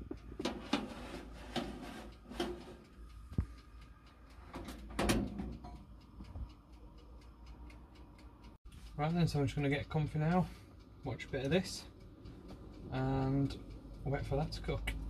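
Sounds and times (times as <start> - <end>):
baking tray clacking and scraping: 0.0 - 3.0
faint steady ticking: 0.0 - 15.0
oven door shutting with a clunk: 4.6 - 5.6.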